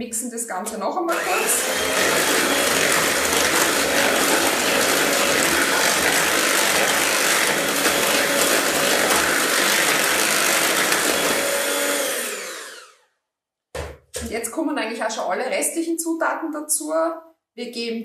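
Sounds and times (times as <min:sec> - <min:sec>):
electric hand mixer whirring: 0:00.6 - 0:13.0.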